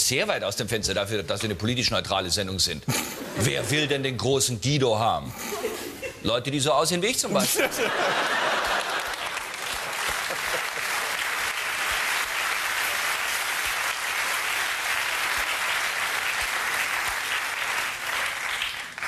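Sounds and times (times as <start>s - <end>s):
audience applauding: 7.9s - 19.0s.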